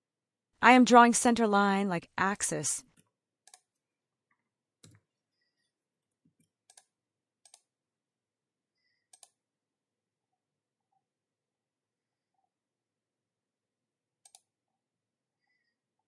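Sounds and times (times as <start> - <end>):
computer mouse clicking: 3.5 - 3.7, 6.4 - 7.7, 9.1 - 9.4, 14.2 - 14.5.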